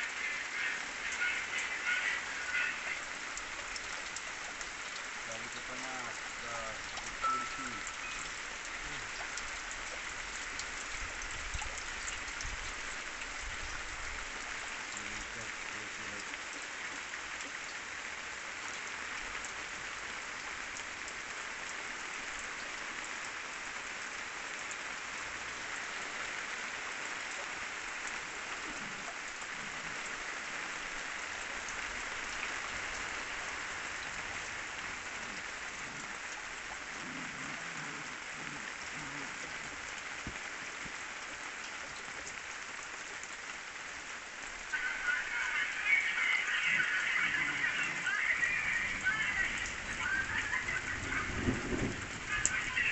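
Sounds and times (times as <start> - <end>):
steady rain falling: 0.0 - 52.9.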